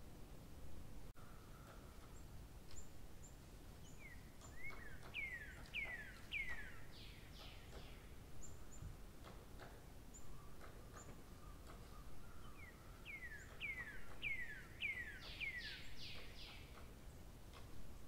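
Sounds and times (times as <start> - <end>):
low hiss: 0.0 - 18.0
high bird chirps: 3.9 - 8.9, 10.2 - 16.8.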